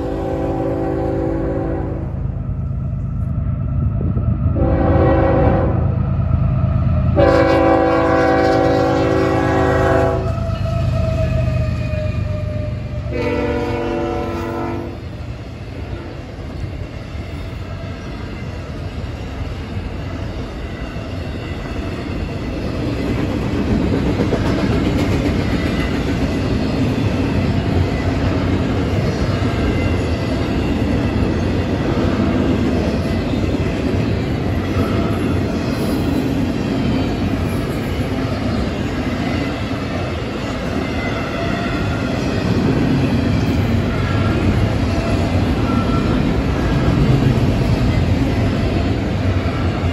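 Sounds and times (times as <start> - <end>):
locomotive horn blast: 0.0 - 2.2, 4.6 - 5.9, 7.2 - 10.8, 12.1 - 15.0
freight train rumbling past: 0.0 - 49.9
wheels clattering on rails: 16.6 - 41.1.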